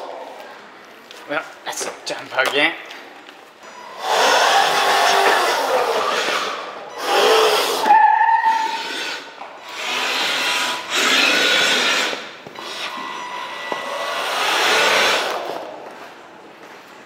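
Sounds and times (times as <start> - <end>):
toy truck motors whirring: 4.0 - 7.9, 8.5 - 13.1, 13.8 - 15.6
tyres rolling on tile floor: 4.0 - 13.1, 13.7 - 17.0.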